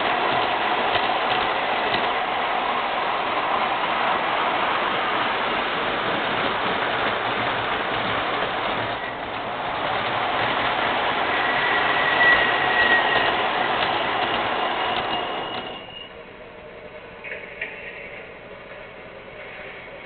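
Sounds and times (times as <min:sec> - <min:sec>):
model train running on track: 0:00.0 - 0:16.3.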